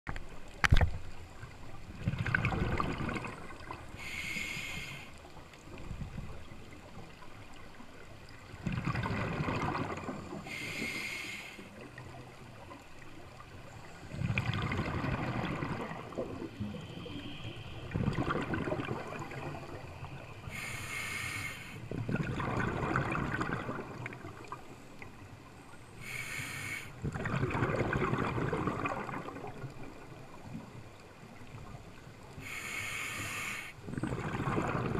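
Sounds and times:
exhaled bubbles rushing: 0:01.9 - 0:03.9, 0:08.5 - 0:10.5, 0:13.9 - 0:20.2, 0:21.9 - 0:24.6, 0:27.0 - 0:30.7, 0:33.8 - 0:34.9
hissing regulator inhales: 0:03.9 - 0:05.2, 0:10.4 - 0:11.8, 0:20.4 - 0:21.9, 0:26.0 - 0:27.0, 0:32.4 - 0:33.8.

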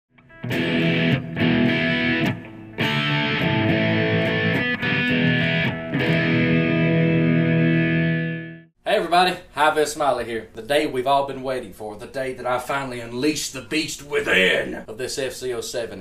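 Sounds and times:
distorted electric guitar chords: 0:00.2 - 0:08.7.

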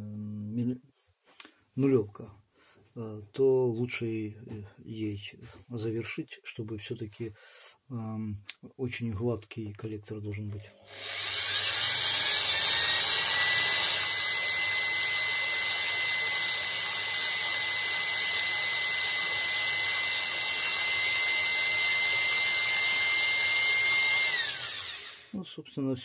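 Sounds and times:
electric drill whine: 0:10.8 - 0:25.4.

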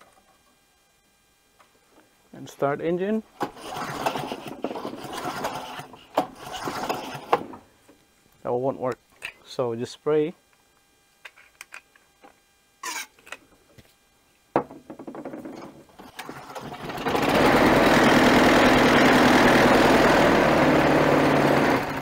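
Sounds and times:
lawn mower engine running: 0:03.4 - 0:07.6, 0:16.0 - 0:22.0.

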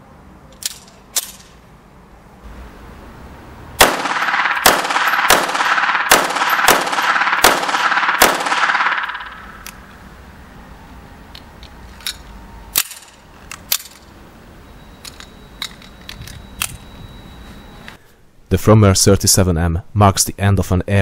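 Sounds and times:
pistol shots with ringing echo: 0:03.8 - 0:09.9.

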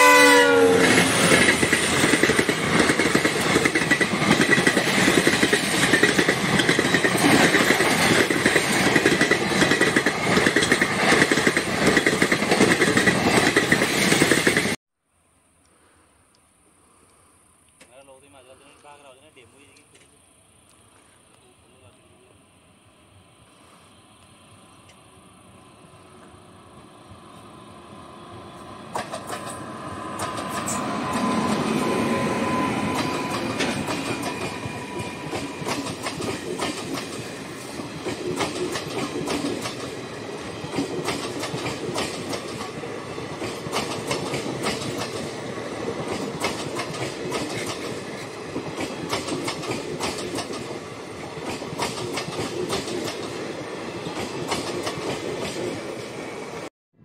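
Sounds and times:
electric locomotive passing: 0:00.0 - 0:14.8, 0:15.4 - 0:56.7
train wheels clicking over rail joints: 0:00.8 - 0:14.8, 0:28.9 - 0:31.8, 0:32.8 - 0:56.2.

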